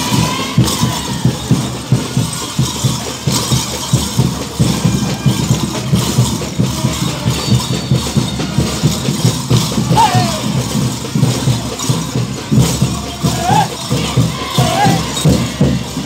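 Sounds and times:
jingling boot bells: 0:00.0 - 0:16.0
steady drum beat: 0:00.0 - 0:16.0
street band dance music: 0:00.0 - 0:16.0.

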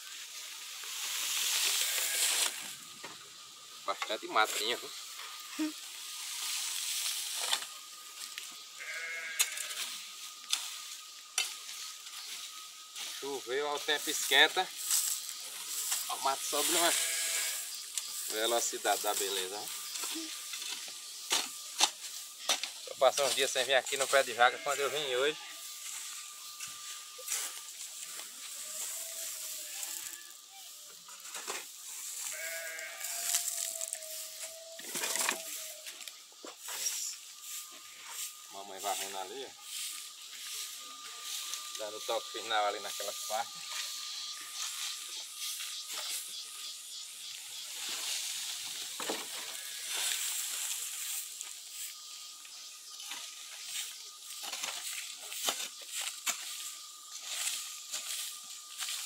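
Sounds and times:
weeds rustling: 0:00.0 - 0:02.9, 0:04.2 - 0:59.0
steady high hiss: 0:00.0 - 0:59.0
sheep bleating: 0:01.8 - 0:02.4, 0:08.8 - 0:09.9, 0:16.6 - 0:17.7, 0:24.2 - 0:25.7, 0:32.2 - 0:34.1, 0:49.5 - 0:49.9.

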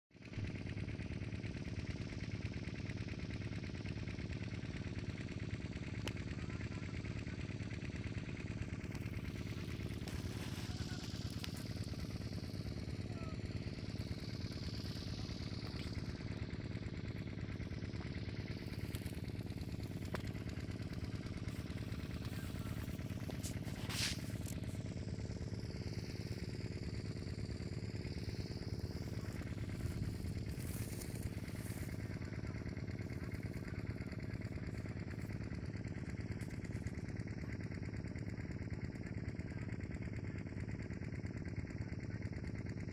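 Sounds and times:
steady engine hum: 0:00.2 - 0:42.9.

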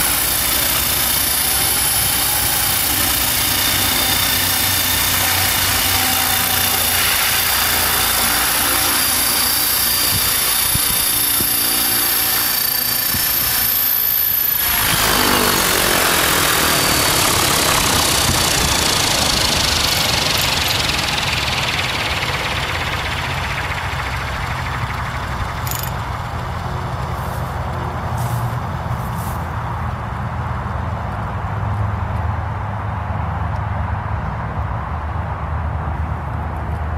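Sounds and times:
helicopter rotor whooshing: 0:00.0 - 0:28.9
high motor whine: 0:00.0 - 0:29.1.

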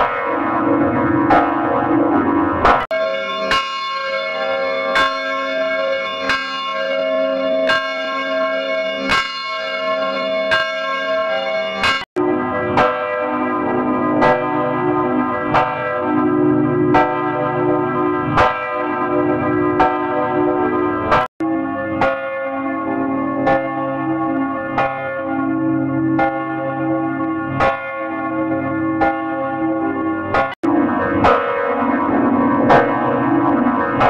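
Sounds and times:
church bell tolling: 0:00.0 - 0:34.0.

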